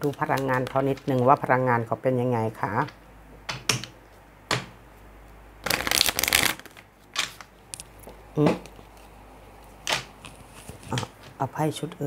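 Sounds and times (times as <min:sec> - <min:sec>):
cards being shuffled: 0:05.6 - 0:11.4.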